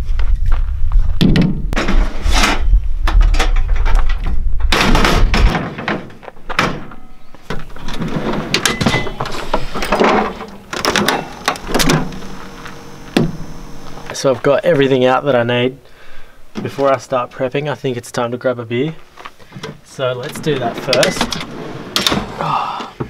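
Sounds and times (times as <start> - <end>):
drawers sliding: 7.6 - 13.5, 20.2 - 22.6.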